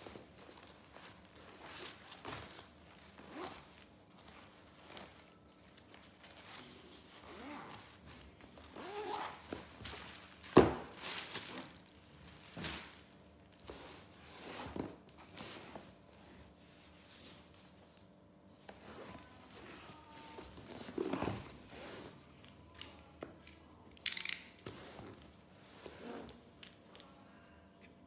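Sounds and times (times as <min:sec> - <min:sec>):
fabric rustling: 0:00.0 - 0:17.8
zipper noises: 0:03.2 - 0:03.8, 0:06.8 - 0:09.7, 0:25.7 - 0:26.4.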